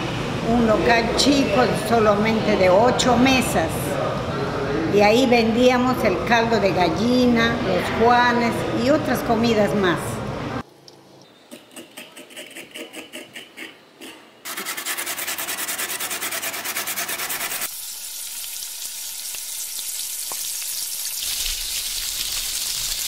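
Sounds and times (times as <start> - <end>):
food grated on metal grater: 11.6 - 17.7
food frying in a pot: 17.6 - 23.0.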